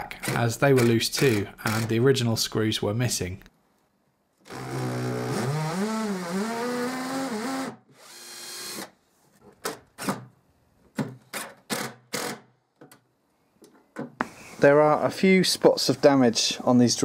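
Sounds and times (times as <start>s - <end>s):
cordless drill whine: 4.5s - 8.9s
impact driver driving screw: 11.4s - 12.5s.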